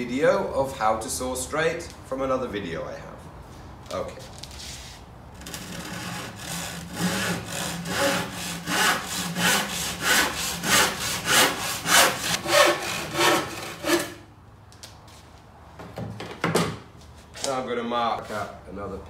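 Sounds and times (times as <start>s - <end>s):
handsaw cutting wood: 5.4s - 14.2s.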